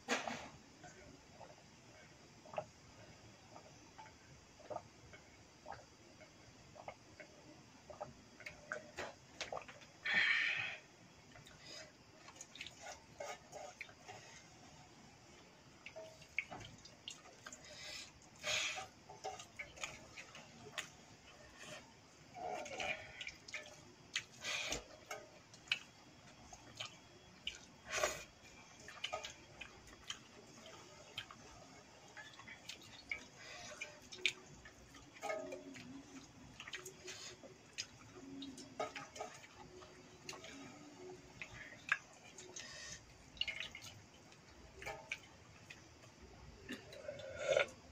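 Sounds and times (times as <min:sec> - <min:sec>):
chewing and slurping: 0:06.7 - 0:47.9
wet rice squelching: 0:11.4 - 0:47.8.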